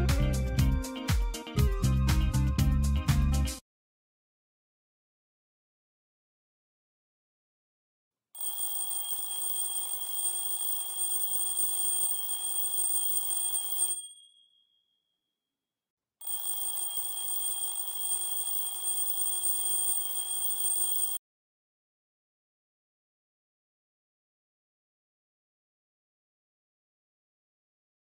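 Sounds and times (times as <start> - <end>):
smartphone alarm ringing: 8.4 - 14.4, 16.2 - 21.2.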